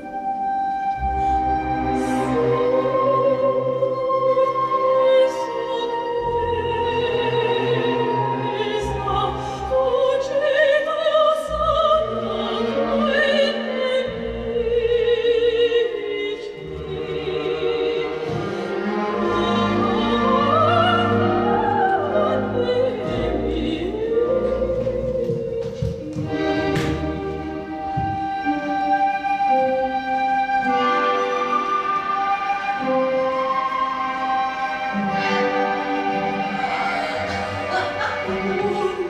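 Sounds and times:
orchestral accompaniment: 0:00.0 - 0:39.0
operatic voice singing: 0:36.5 - 0:39.0.

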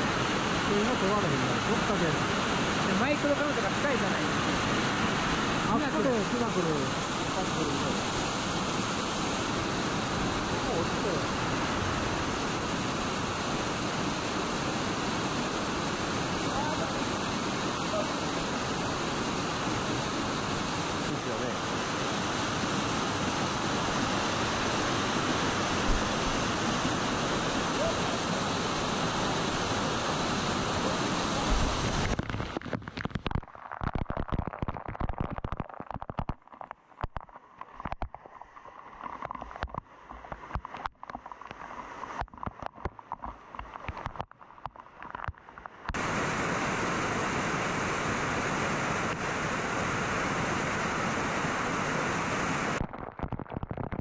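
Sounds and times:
waterfall rushing: 0:00.0 - 0:33.3, 0:45.9 - 0:52.8.

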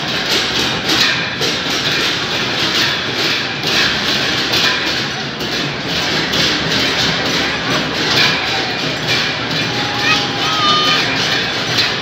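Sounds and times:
rhythmic percussion clashing: 0:00.0 - 0:12.0
crowd din: 0:04.6 - 0:12.0.

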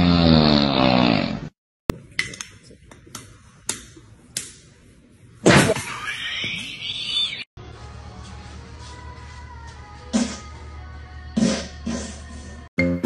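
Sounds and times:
loud low snore: 0:00.0 - 0:01.6.

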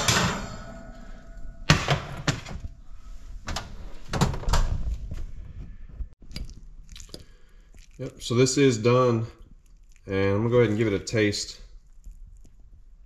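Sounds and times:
oven door shutting: 0:00.0 - 0:02.7.

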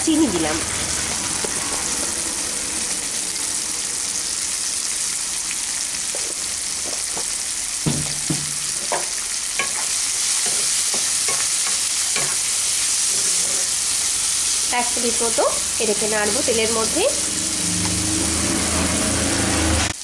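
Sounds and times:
vegetables sizzling in oil: 0:00.0 - 0:20.0
spatula stirring vegetables: 0:06.0 - 0:18.1.

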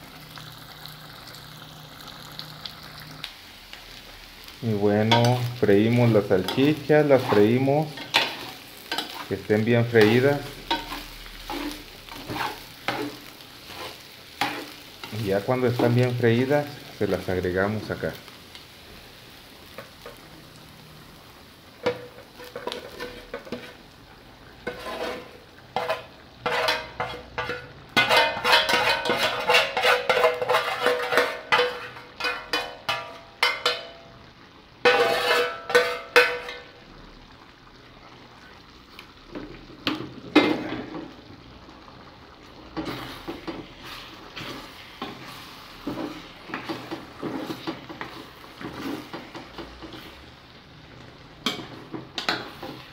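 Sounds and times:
spoon scraping skillet: 0:04.7 - 0:17.2, 0:21.8 - 0:34.0, 0:34.8 - 0:36.8, 0:42.5 - 0:52.9
stirring in pot: 0:05.0 - 0:16.1, 0:21.8 - 0:23.8, 0:24.6 - 0:33.9, 0:34.8 - 0:36.6, 0:42.6 - 0:50.2.

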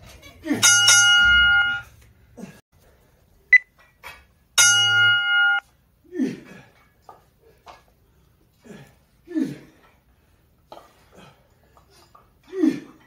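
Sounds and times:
timer buzzing tone: 0:04.6 - 0:05.6
short high beep: 0:04.9 - 0:05.6.

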